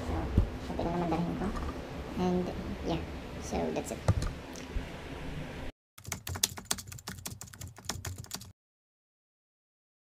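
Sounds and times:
keyboard typing clicks: 0:06.0 - 0:08.5.

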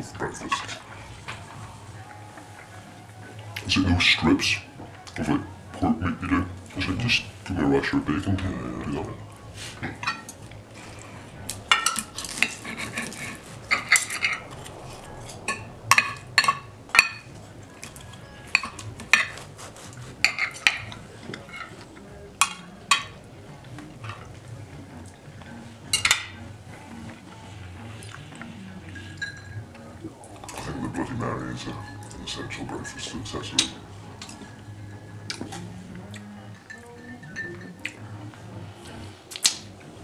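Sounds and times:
cutlery clinking on a plate: 0:17.9 - 0:19.6, 0:20.2 - 0:21.8, 0:29.0 - 0:29.6.

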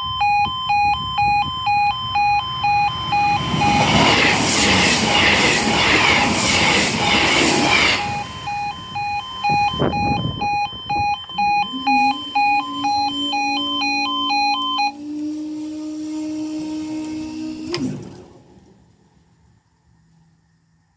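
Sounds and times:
two-tone crossing alarm: 0:00.0 - 0:18.2
barrier motor humming: 0:00.1 - 0:19.3
train rushing past: 0:01.8 - 0:10.4.

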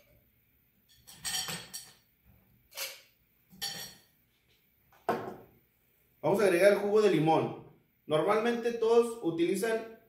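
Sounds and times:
ice clinking on glass: 0:00.9 - 0:02.0, 0:03.6 - 0:04.0.

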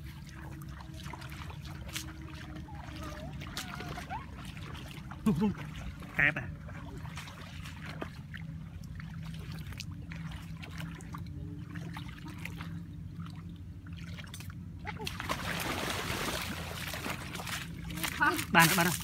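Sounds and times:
steady low hum: 0:00.0 - 0:19.0
water trickling: 0:00.0 - 0:19.0.

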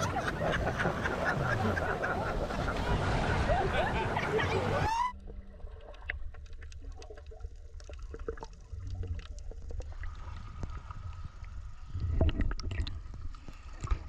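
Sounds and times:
small clicks and bubble pops: 0:05.8 - 0:10.8.

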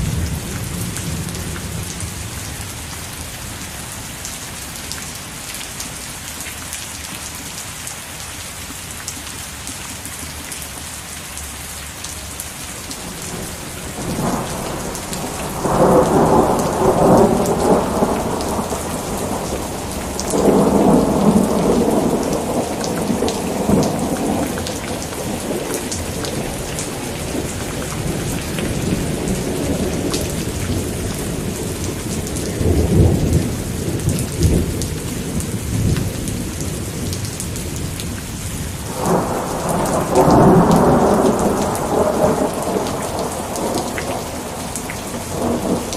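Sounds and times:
steady rain: 0:00.0 - 0:45.9
rolling thunder: 0:13.0 - 0:37.3, 0:38.8 - 0:45.9.

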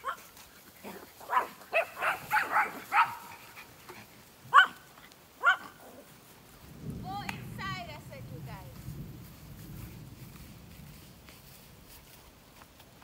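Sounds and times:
small dog barking: 0:00.0 - 0:03.5, 0:04.5 - 0:06.1.

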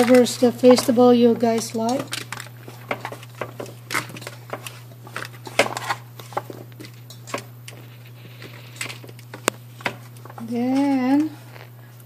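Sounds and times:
food pieces knocking on foil: 0:00.0 - 0:07.6.

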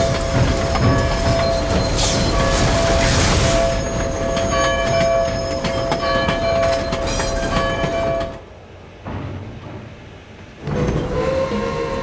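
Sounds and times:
steam hiss: 0:00.0 - 0:08.0
steam locomotive squeal: 0:00.0 - 0:08.4, 0:10.6 - 0:12.0.

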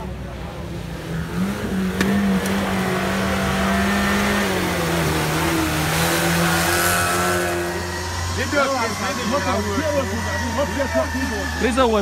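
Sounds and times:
car engine at high revs: 0:00.0 - 0:12.0.

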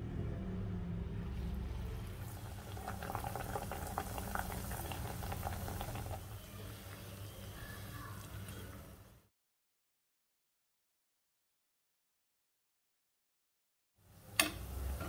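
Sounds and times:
oil sizzling and crackling: 0:01.3 - 0:09.2.

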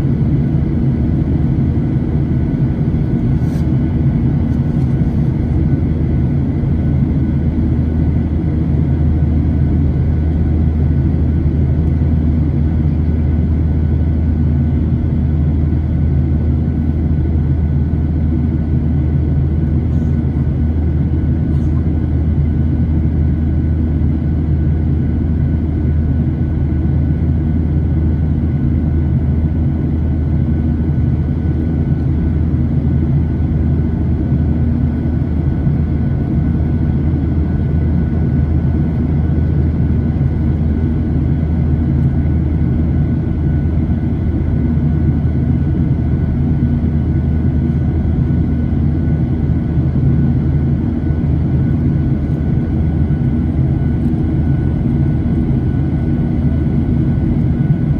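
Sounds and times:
jet engine drone and rushing air: 0:00.0 - 0:57.9.

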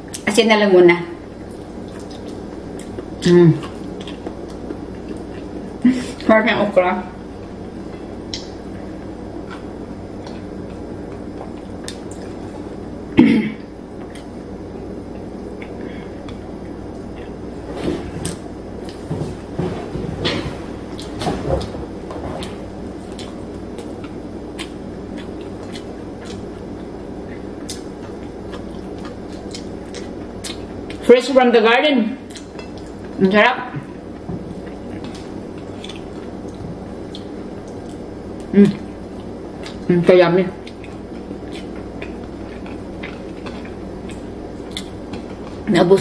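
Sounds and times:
room hum: 0:00.0 - 0:46.0
chewing: 0:01.4 - 0:05.5, 0:07.9 - 0:12.6, 0:22.3 - 0:31.0, 0:32.2 - 0:33.2, 0:34.5 - 0:39.9, 0:40.6 - 0:45.6.

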